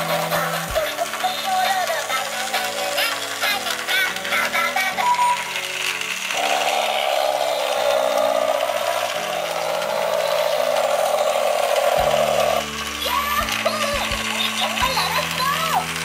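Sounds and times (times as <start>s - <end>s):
toy airplane motor buzzing: 0.0s - 16.0s.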